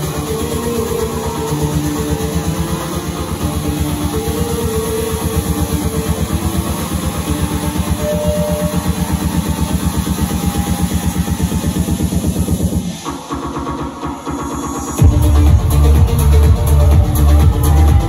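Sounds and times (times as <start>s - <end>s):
techno pulsing bassline: 0.0s - 18.0s
held synth tones: 4.1s - 11.6s.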